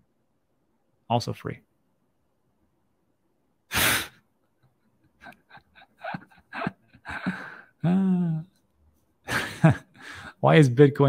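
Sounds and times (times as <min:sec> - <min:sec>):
man laughing: 0:04.9 - 0:08.6, 0:09.3 - 0:10.4.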